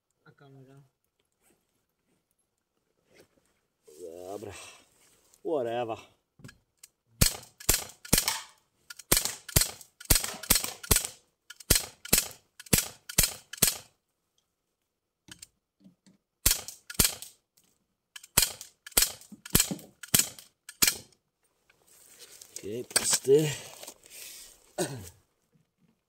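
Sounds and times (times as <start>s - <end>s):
air pistol shots cracking: 7.2s - 13.9s, 16.4s - 17.3s, 18.2s - 21.1s.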